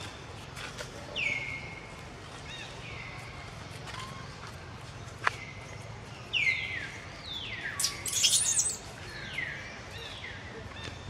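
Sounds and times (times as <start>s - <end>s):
high-pitched animal calls: 7.8s - 8.8s.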